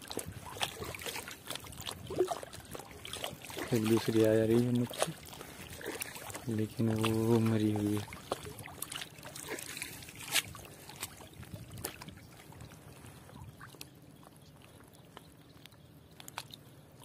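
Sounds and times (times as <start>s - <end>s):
sharp splash: 0.0s - 12.0s
water splashing and sloshing: 0.0s - 17.0s.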